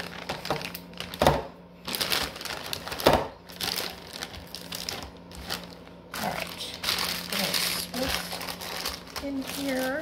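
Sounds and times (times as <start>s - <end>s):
plastic packets crinkling: 0.0s - 10.0s.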